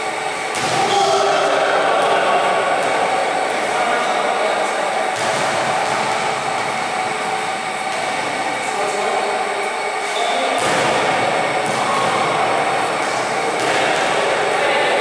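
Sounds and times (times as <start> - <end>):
players' voices: 0.0 - 15.0
steady noisy hum: 0.0 - 15.0.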